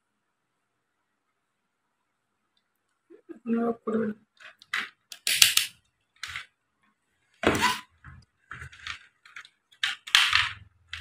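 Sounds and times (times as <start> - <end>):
clattering handling noises: 7.4 - 11.0.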